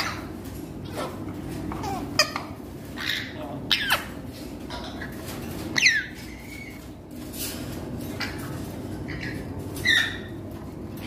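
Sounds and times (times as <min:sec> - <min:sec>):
parrot squawking: 0:00.0 - 0:00.3, 0:01.7 - 0:06.8, 0:09.1 - 0:10.4.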